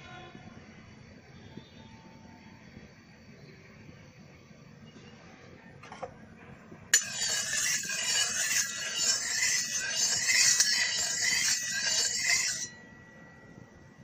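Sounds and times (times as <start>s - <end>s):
metal spatula scraping a pan: 7.0s - 12.9s.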